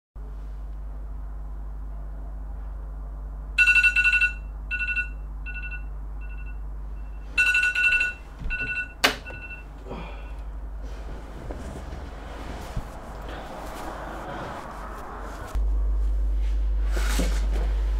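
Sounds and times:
electronic alarm beeping: 0:03.6 - 0:09.7.

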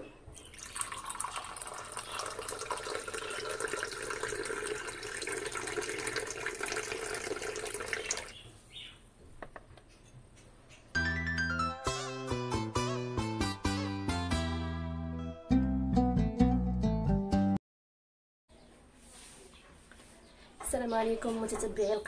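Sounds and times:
coffee pouring into a cup: 0:00.4 - 0:08.3
plucked-string music: 0:11.0 - 0:17.6.

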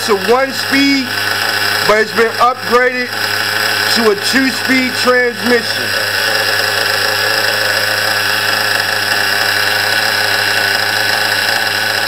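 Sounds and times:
small engine idling buzzing: 0:00.0 - 0:12.0.

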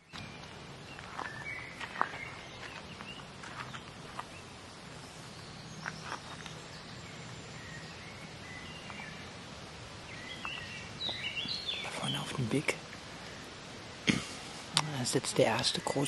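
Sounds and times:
bird chirps: 0:00.0 - 0:04.5, 0:05.2 - 0:13.4
steady background hush: 0:00.0 - 0:16.0.

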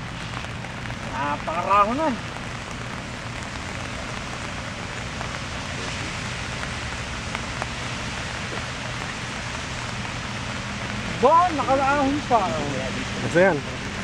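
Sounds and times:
steady rain hissing: 0:00.0 - 0:14.0.

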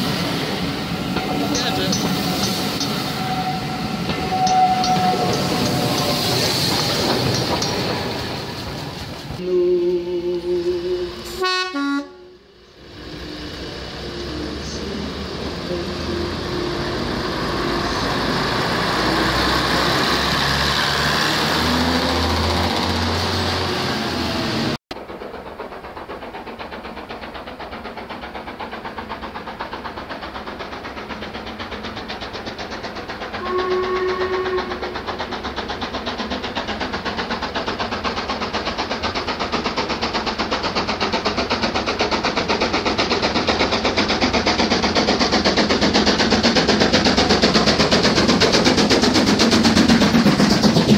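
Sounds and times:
diesel train engines running: 0:00.0 - 0:50.9
steam locomotive exhaust beats: 0:00.0 - 0:50.9
train whistle: 0:01.2 - 0:06.2, 0:09.4 - 0:12.5, 0:33.4 - 0:35.0.

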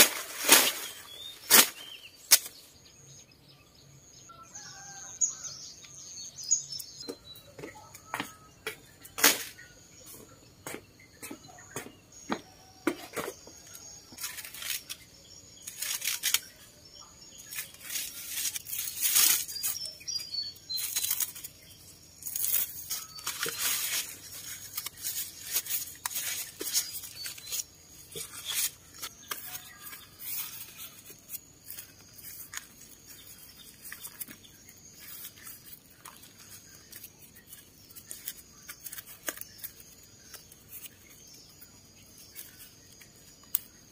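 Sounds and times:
dry corn husks rustling: 0:00.0 - 0:02.6, 0:13.6 - 0:43.9.

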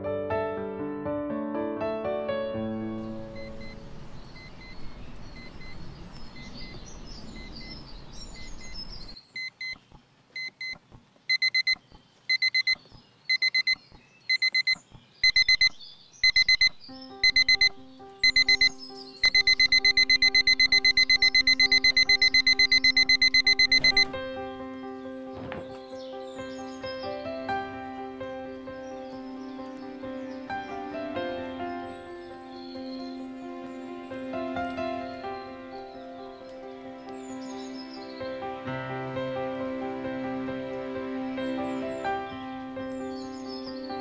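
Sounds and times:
outdoor hiss: 0:02.9 - 0:11.3
high bird-like chirps: 0:03.1 - 0:24.2
alarm clock beeping: 0:03.3 - 0:03.8, 0:05.4 - 0:05.8, 0:07.4 - 0:07.8, 0:10.4 - 0:24.1.

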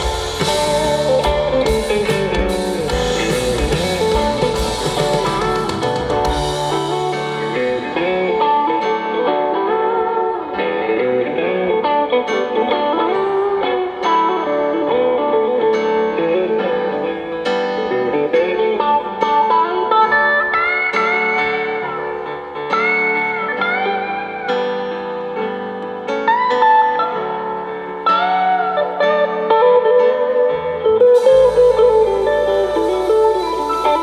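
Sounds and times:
bass and drums: 0:00.0 - 0:08.7, 0:31.2 - 0:34.0
guitar melody with bent notes: 0:00.0 - 0:34.0.

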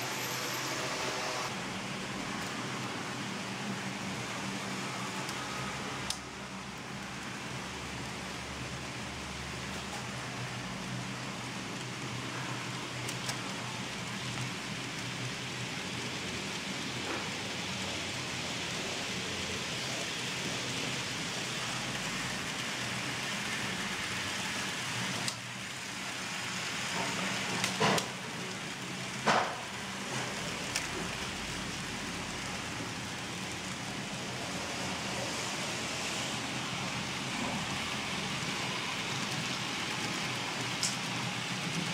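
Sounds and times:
model train wheels rattling on track: 0:37.2 - 0:41.9.

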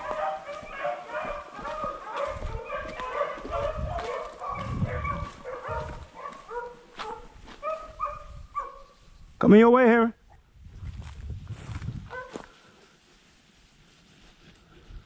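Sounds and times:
beagles baying: 0:00.0 - 0:09.0, 0:12.1 - 0:12.5.

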